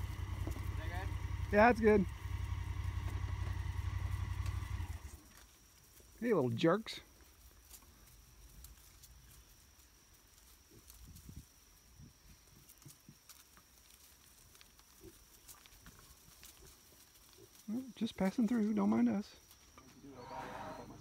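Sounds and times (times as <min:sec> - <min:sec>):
piglets grunting: 0:20.1 - 0:21.0.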